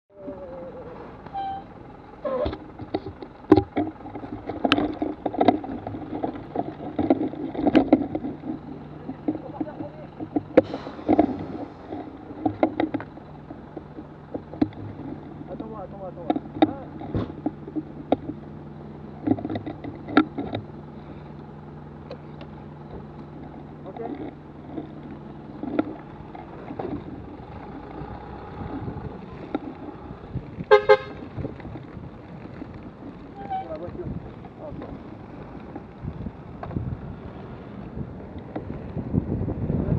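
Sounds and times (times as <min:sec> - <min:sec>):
wheels rumbling on asphalt: 0:00.0 - 0:39.9
horn toots: 0:01.3 - 0:02.6, 0:30.6 - 0:31.3.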